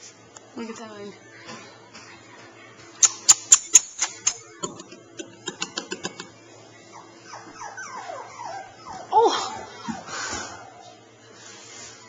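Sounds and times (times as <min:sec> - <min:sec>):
puppy whining: 0:06.7 - 0:11.2.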